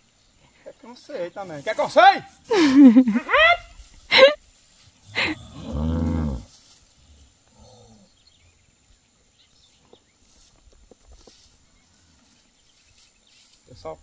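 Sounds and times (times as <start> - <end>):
cow mooing: 5.2 - 6.4.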